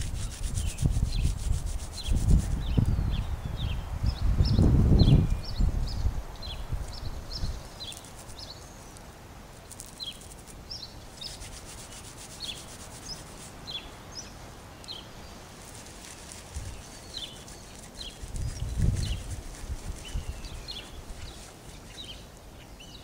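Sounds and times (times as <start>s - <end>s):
dry stems rubbed between palms: 0.0s - 2.8s, 7.8s - 13.9s, 14.9s - 22.3s
bird chirping: 0.0s - 23.0s.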